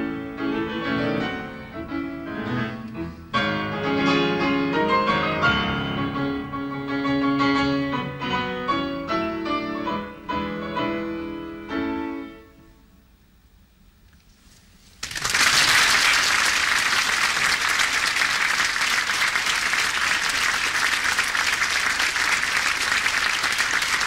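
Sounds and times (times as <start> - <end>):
audience clapping: 15.0 - 24.0.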